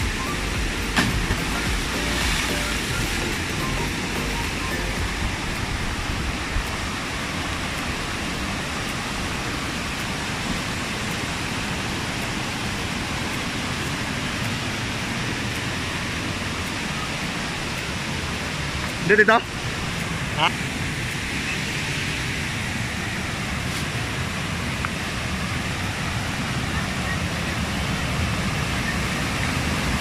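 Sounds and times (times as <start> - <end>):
water rushing over waterfall: 0.0 - 30.0.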